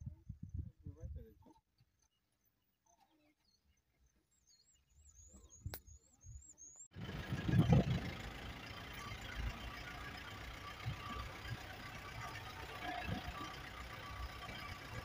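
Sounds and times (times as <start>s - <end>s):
low vehicle engine rumble: 7.0s - 15.0s.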